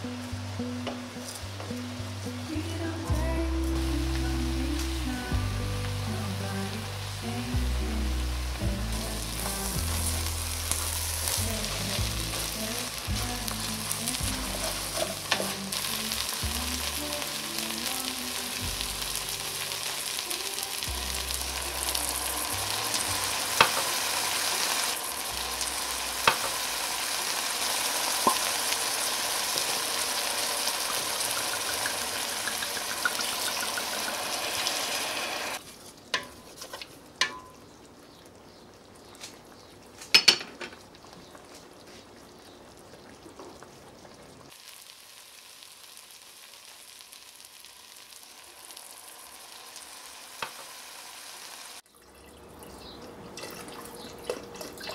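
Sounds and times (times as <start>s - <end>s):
onions sizzling in pan: 0.0s - 37.8s, 41.2s - 51.8s
utensil tapping pan: 23.6s - 24.0s, 26.2s - 26.6s, 31.3s - 34.2s, 36.1s - 37.6s.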